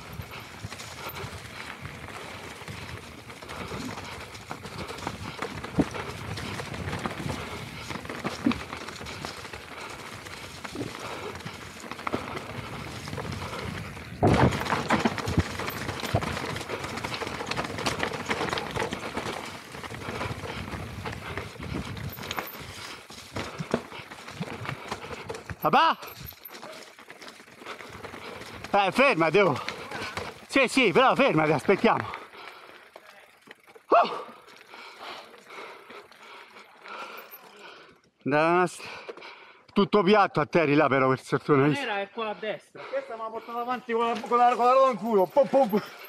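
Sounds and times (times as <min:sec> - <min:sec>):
tyres crunching over stones: 0:00.0 - 0:35.4
bike rattling: 0:00.0 - 0:37.8, 0:43.5 - 0:46.0.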